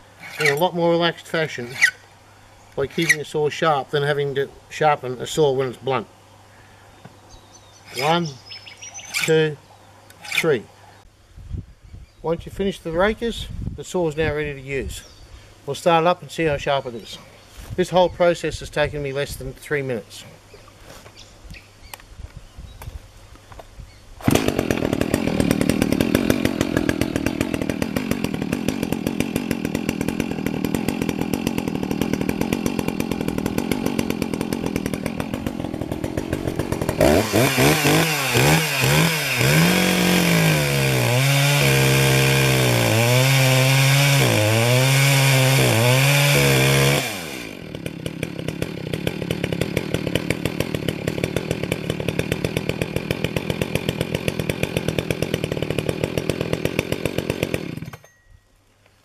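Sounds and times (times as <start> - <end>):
chainsaw cutting through log: 0.0 - 2.0, 2.8 - 3.3, 7.9 - 10.7, 24.2 - 58.1
chainsaw idling: 0.1 - 1.9, 2.8 - 3.3, 7.9 - 8.3, 24.2 - 58.2.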